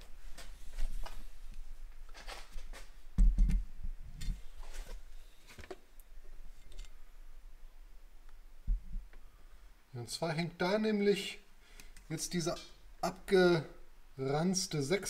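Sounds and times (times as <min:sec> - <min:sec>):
dull low thumps: 0:08.6 - 0:09.1.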